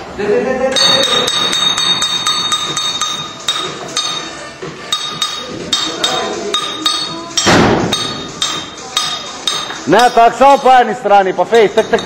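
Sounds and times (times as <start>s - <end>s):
metal rod clinking on mould: 0.8s - 10.9s, 11.6s - 12.0s
heavy metallic clank: 4.9s - 10.8s.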